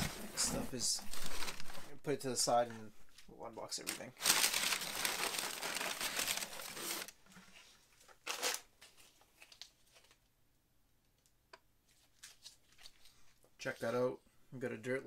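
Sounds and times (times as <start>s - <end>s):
paper rustling and crumpling: 0.0s - 2.0s, 3.8s - 7.2s, 11.9s - 13.4s.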